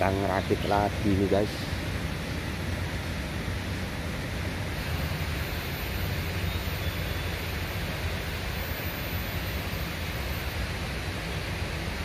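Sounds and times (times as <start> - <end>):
river water rushing: 0.0 - 12.0.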